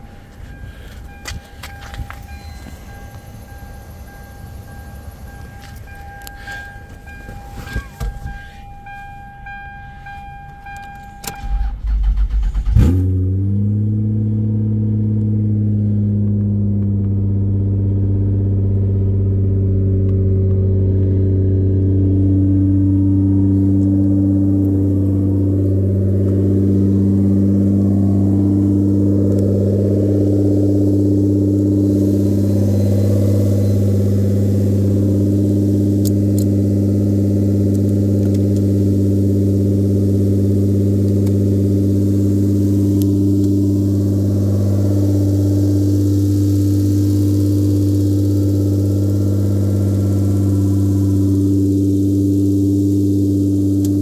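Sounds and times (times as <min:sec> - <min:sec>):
high-pitched warning tone: 0:00.0 - 0:12.0, 0:23.5 - 0:37.4, 0:39.0 - 0:53.8
car engine idling: 0:00.0 - 0:54.0.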